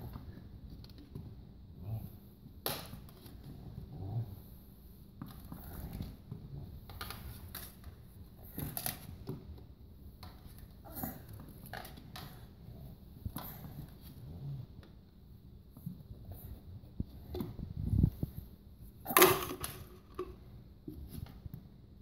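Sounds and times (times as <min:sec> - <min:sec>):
tennis balls knocking and rattling: 0:19.1 - 0:21.6.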